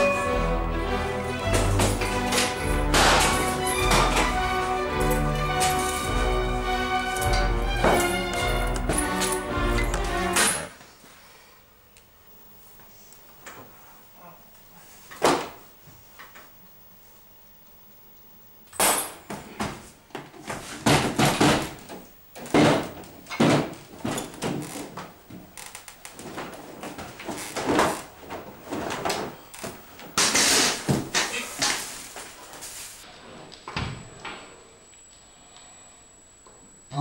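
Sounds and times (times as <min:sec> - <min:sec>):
door banging: 0:01.4 - 0:10.7
loud bangs thumps and rattles: 0:01.7 - 0:04.5.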